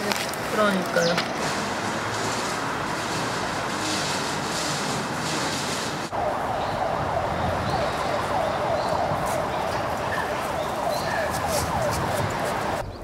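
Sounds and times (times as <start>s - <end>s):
bird chirps: 6.6s - 11.6s.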